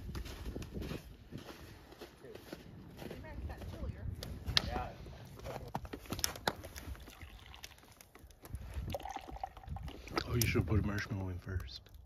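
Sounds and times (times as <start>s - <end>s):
hot chocolate pouring into mug: 6.8s - 8.2s, 8.8s - 10.5s.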